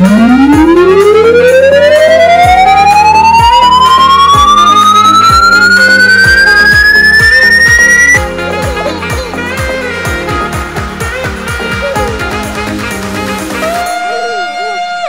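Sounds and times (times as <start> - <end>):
siren rising wail: 0.0 - 8.2
background music with steady beat: 0.0 - 14.5.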